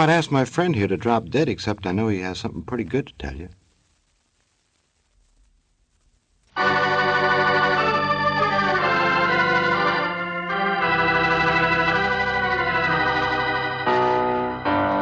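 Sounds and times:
sustained organ chords: 6.6 - 15.0.

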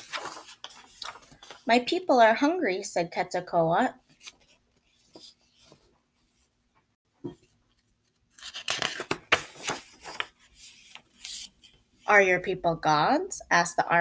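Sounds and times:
paper rustling and page turning: 0.0 - 1.7, 4.0 - 6.5, 7.7 - 11.9.

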